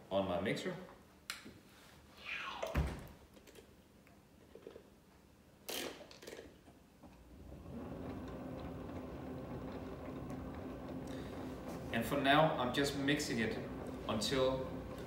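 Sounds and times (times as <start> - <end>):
stand mixer motor running: 7.4 - 15.0.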